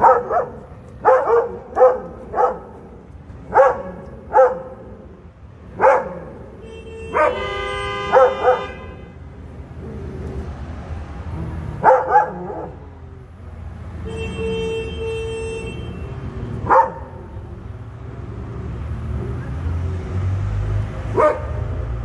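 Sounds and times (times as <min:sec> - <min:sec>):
dogs barking: 0:00.0 - 0:08.8, 0:11.4 - 0:13.0, 0:16.5 - 0:17.4, 0:21.0 - 0:22.0.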